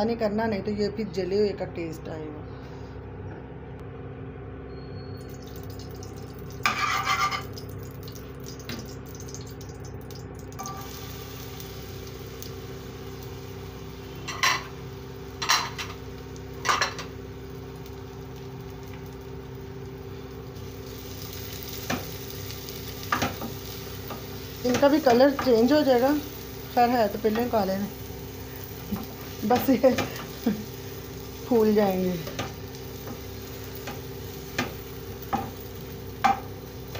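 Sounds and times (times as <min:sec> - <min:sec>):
steady low hum: 0:00.0 - 0:36.9
utensil knocking on pan: 0:34.5 - 0:35.6, 0:36.2 - 0:36.5.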